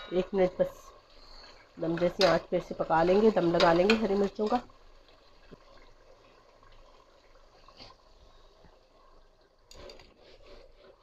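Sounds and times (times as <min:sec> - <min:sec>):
curry bubbling in a pot: 0:00.1 - 0:11.0.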